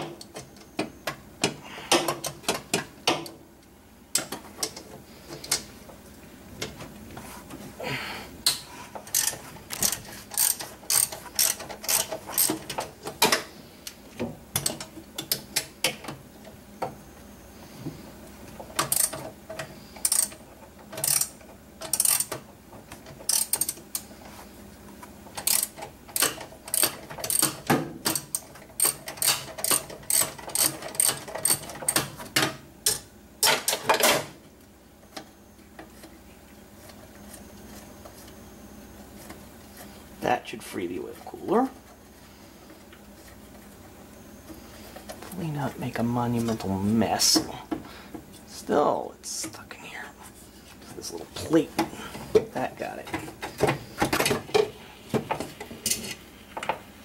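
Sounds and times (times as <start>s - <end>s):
hand ratchet clicking: 8.4s - 12.8s, 18.9s - 19.2s, 20.0s - 20.4s, 21.0s - 22.4s, 23.3s - 24.0s, 25.4s - 32.0s.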